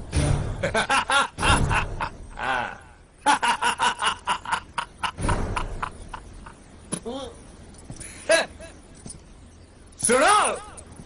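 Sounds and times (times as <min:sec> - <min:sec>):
man laughing: 0:00.6 - 0:06.7, 0:08.1 - 0:08.8.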